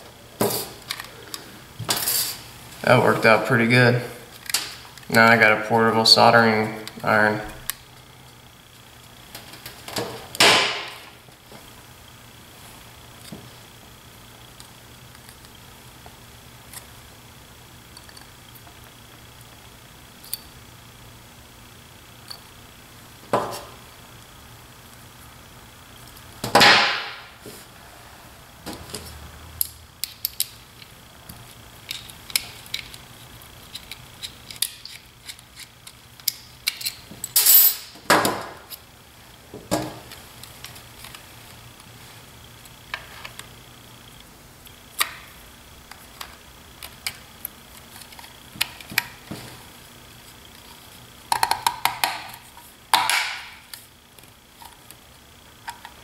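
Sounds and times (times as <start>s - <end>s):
clicks and taps of small parts: 51.3s - 53.8s.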